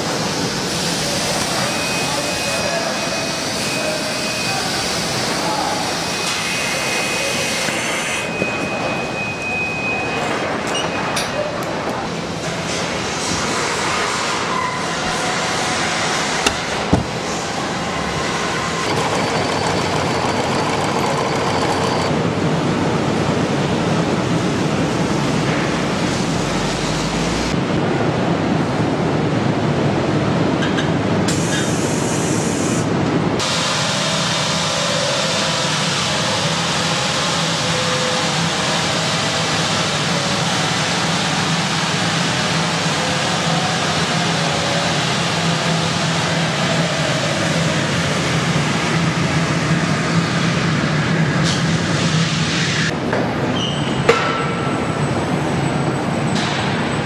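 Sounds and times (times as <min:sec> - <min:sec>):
assembly line machinery noise: 0:00.0 - 0:23.7
car running on roller test stand: 0:18.1 - 0:22.2.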